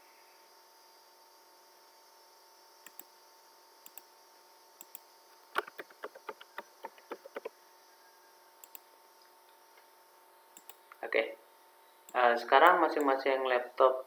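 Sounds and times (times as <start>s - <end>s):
faint steady hum: 0.0s - 14.0s
mouse clicks: 2.8s - 3.1s, 3.8s - 4.1s, 5.6s - 7.5s, 8.6s - 8.9s, 10.6s - 11.0s
keyboard typing: 5.6s - 7.5s.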